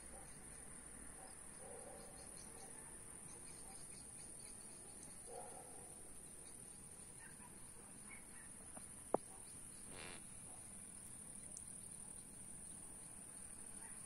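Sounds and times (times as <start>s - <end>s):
crickets chirring: 0.1s - 14.0s.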